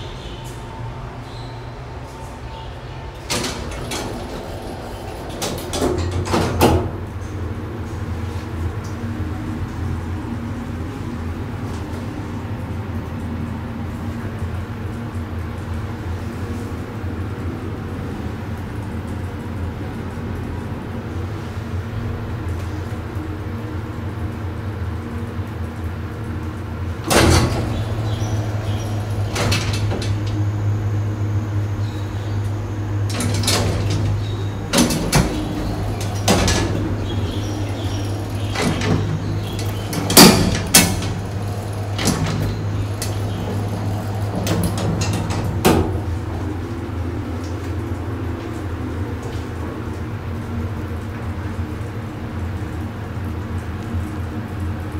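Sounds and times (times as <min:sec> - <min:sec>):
lift doors clunking and rattling: 0:00.0 - 0:19.9, 0:25.9 - 0:51.3
low lift hum: 0:00.0 - 0:53.4.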